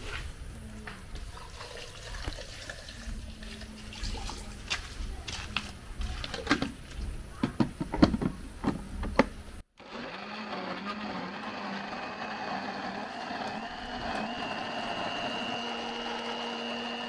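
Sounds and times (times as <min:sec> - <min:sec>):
blender running: 0:09.8 - 0:17.0.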